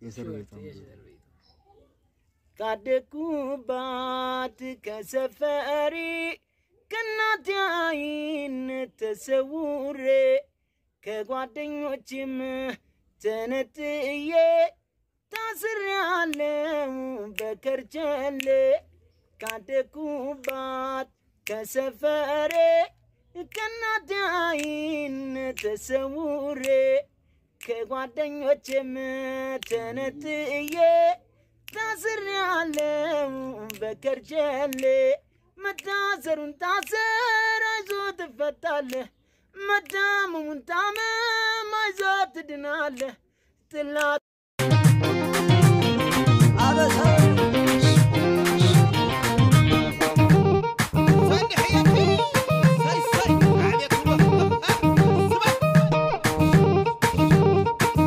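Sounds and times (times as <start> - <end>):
person singing unaccompanied: 2.5 - 58.0
high voice singing: 43.8 - 58.0.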